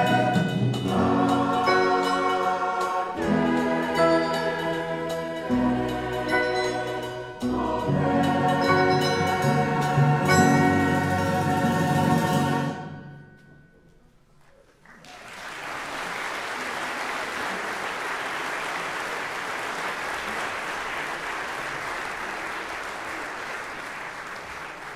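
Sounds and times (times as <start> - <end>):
audience applause: 14.6 - 24.9.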